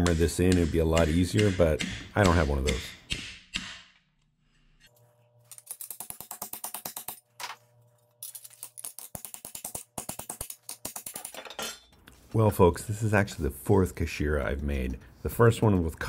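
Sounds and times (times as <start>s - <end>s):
small hammer tapping steel: 0.0s - 4.0s.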